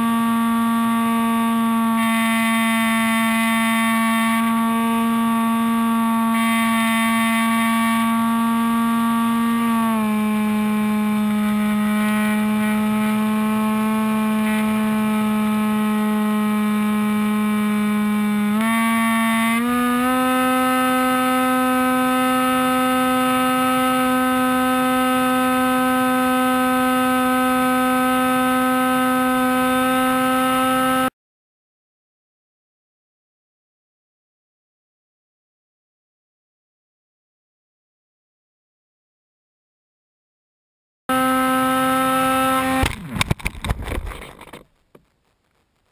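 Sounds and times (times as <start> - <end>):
electric motor and propeller whine: 0.0 - 31.1, 41.1 - 44.2.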